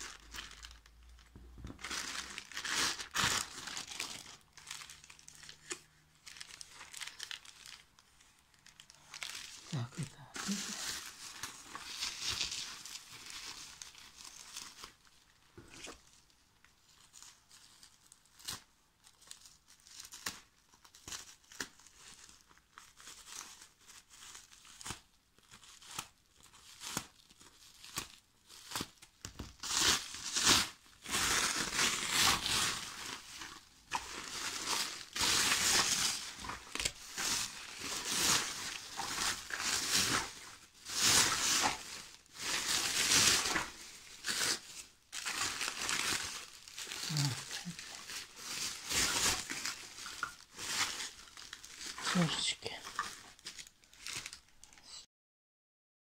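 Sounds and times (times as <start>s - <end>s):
bubble wrap crinkling: 0.0s - 55.0s.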